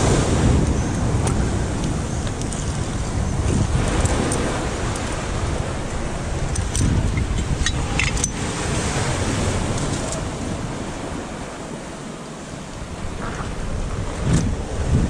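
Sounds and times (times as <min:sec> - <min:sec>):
waves washing onto shore: 0:00.0 - 0:15.0
wind buffeting microphone: 0:00.0 - 0:15.0
gear clicks: 0:06.5 - 0:08.4.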